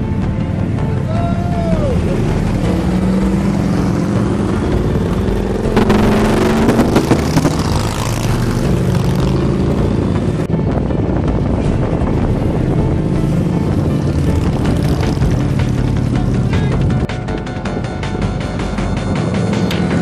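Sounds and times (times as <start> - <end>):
motorcycles riding past: 1.0 - 10.5, 11.1 - 17.0.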